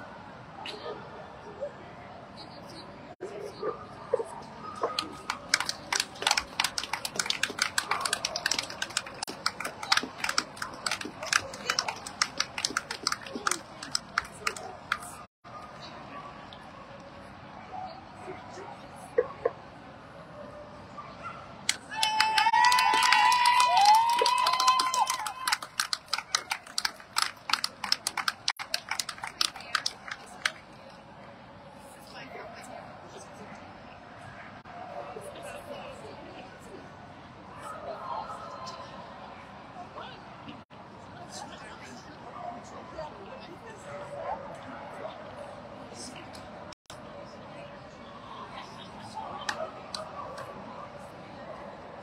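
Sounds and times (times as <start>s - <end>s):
faint crowd murmur: 0.0s - 52.0s
people clapping: 4.8s - 15.3s, 21.7s - 30.8s
scattered handclaps: 4.9s - 15.3s, 21.7s - 30.8s
person cheering: 21.9s - 25.6s.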